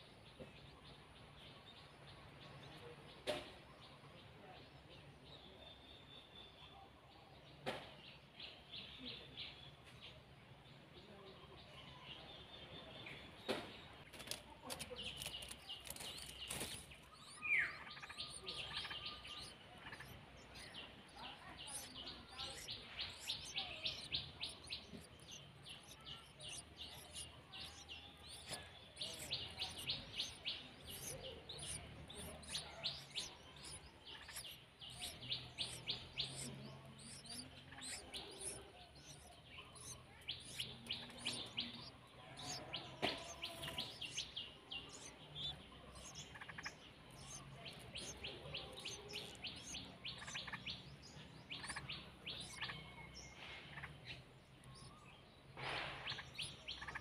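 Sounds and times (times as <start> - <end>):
nestlings chirping: 12.5 - 57.0.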